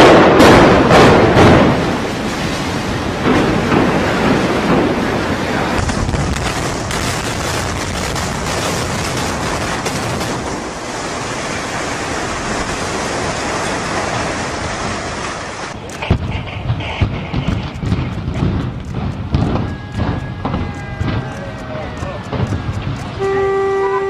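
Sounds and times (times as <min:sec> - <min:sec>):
rumble of collapsing debris: 0:00.0 - 0:23.2
sharp cracks: 0:05.7 - 0:10.9, 0:15.7 - 0:23.3.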